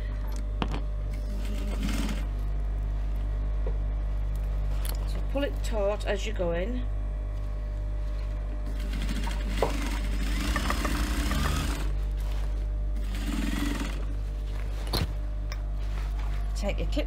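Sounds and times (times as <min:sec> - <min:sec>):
sewing machine stitching: 0:01.1 - 0:02.3, 0:08.7 - 0:11.9, 0:13.0 - 0:14.1.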